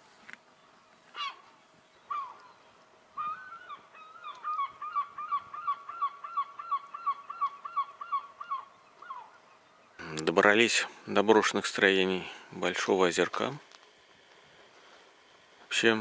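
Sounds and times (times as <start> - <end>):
bird honking calls: 1.1 - 2.5, 3.2 - 9.6.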